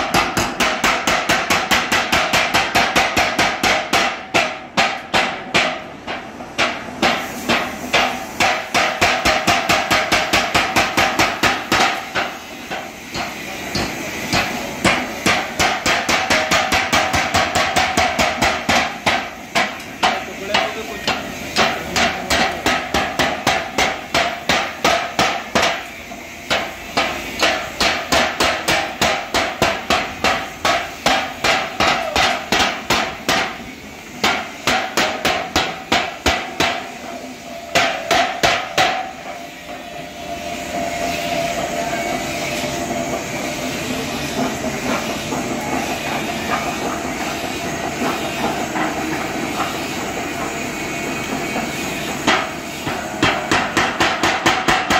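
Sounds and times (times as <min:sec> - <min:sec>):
power hammer blows on steel: 0:06.6 - 0:43.3.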